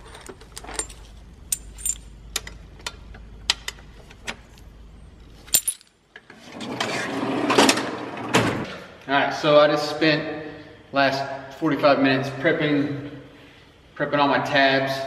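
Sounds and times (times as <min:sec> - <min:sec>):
metal brackets clinking: 0:00.0 - 0:02.6, 0:05.4 - 0:06.0
drawer sliding on runners: 0:06.3 - 0:08.6.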